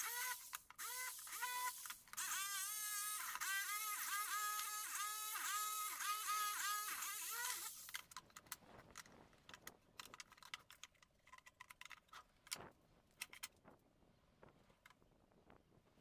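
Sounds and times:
electric jigsaw cutting: 0.0 - 7.9.

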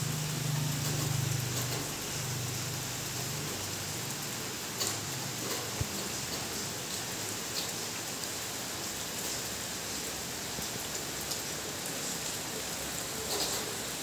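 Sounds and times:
rain on gravel and puddles: 0.0 - 14.0.

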